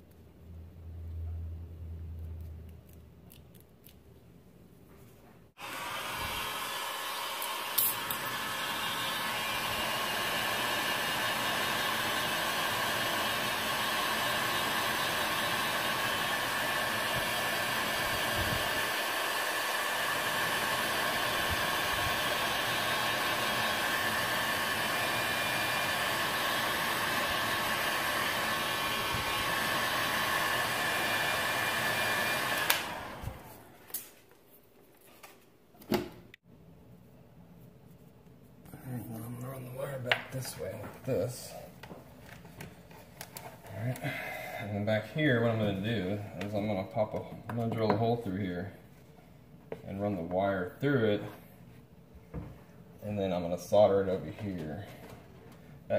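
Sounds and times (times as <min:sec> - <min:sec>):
heat gun blowing air: 0:05.6 - 0:33.7.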